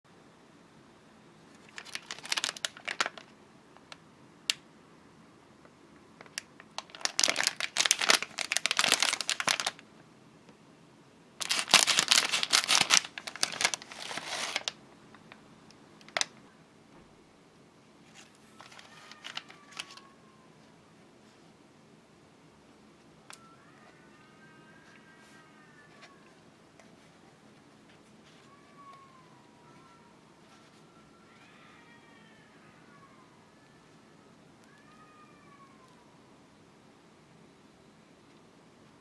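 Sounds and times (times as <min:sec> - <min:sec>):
plastic wrapper crinkling: 0:01.5 - 0:04.6, 0:06.2 - 0:09.8, 0:11.4 - 0:15.4, 0:16.0 - 0:16.4, 0:18.0 - 0:20.1.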